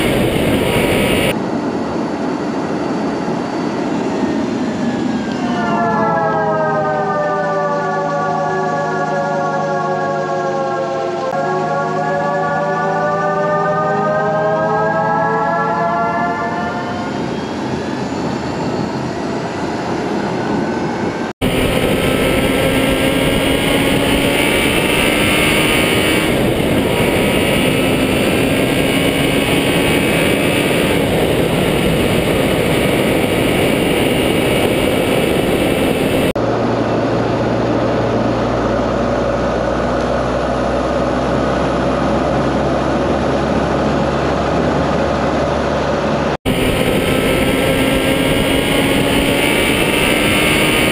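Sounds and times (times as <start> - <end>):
vehicle engine accelerating: 0.0 - 1.4, 21.4 - 50.9
low drone: 0.0 - 50.9
road and wind noise: 0.0 - 50.9.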